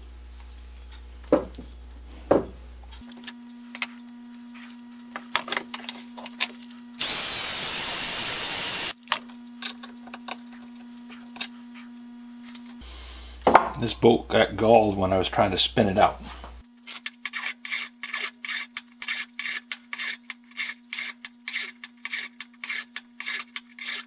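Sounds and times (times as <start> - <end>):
cordless drill running a bolt: 7.0 - 9.0.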